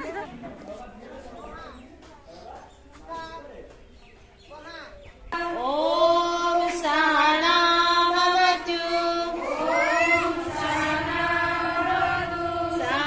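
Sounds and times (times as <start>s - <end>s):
women singing a prayer together: 5.3s - 13.0s.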